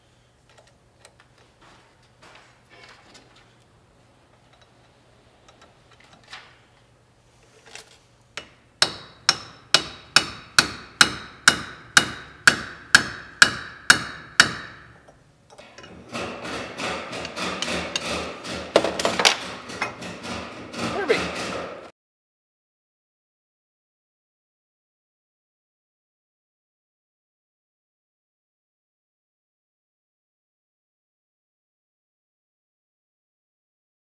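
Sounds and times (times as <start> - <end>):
hammer striking metal: 8.4 - 21.9
metallic clatter: 15.6 - 21.9.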